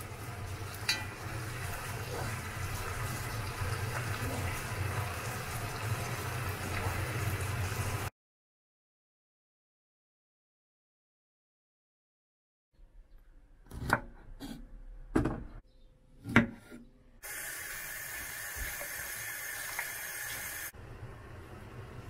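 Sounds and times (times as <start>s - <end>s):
pot boiling: 0.0s - 8.1s, 17.2s - 22.0s
running water hiss: 17.2s - 20.7s.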